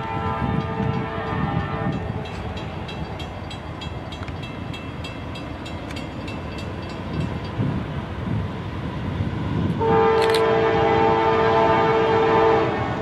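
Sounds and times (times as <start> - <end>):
locomotive air horn chord: 0.0 - 2.1, 9.8 - 12.9
train rumble: 0.0 - 13.0.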